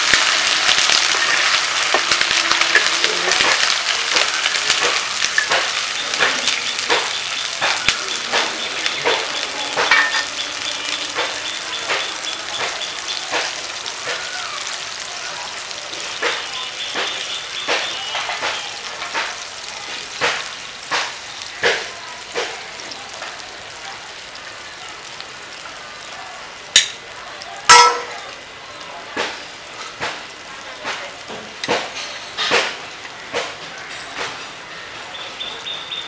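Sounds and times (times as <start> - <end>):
oil popping and spitting: 0.0 - 10.4
oil sizzling with frying onions: 0.0 - 36.0.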